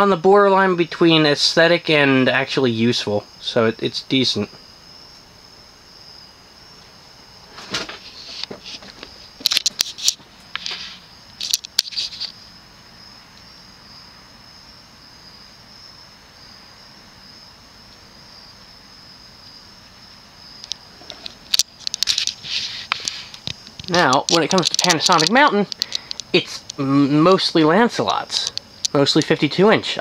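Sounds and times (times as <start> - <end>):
ceiling fan humming: 0.0 - 30.0
crickets chirring: 0.0 - 30.0
clicks and rustles: 7.5 - 12.4, 20.6 - 26.8, 28.2 - 29.4.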